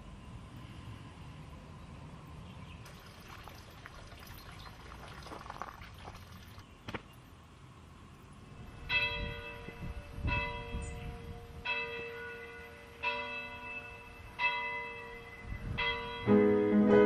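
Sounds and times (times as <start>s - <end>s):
church bell tolling: 8.9s - 17.0s.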